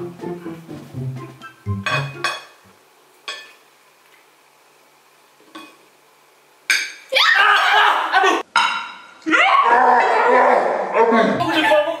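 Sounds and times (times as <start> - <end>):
spoon clinking on ceramic plate: 1.8 - 2.6
loud cry: 7.1 - 8.4, 9.3 - 11.4.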